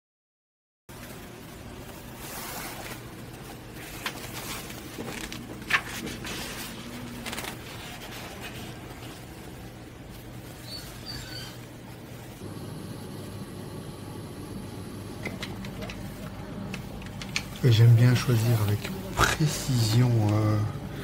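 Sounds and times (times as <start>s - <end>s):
low room hum: 0.9s - 21.0s
padded jacket rustling: 1.0s - 12.4s
paper sketchbook rustling: 1.0s - 12.4s.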